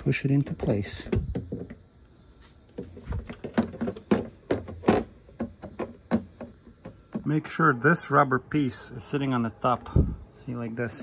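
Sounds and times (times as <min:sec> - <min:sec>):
plastic housing clicking and knocking: 0:01.0 - 0:01.9, 0:02.8 - 0:07.3.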